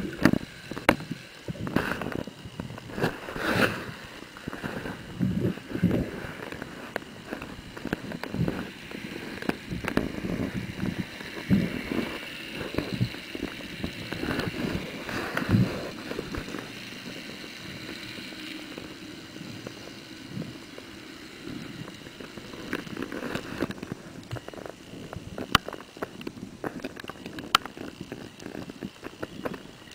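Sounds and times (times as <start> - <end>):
sharp clicks: 20.4 - 29.9.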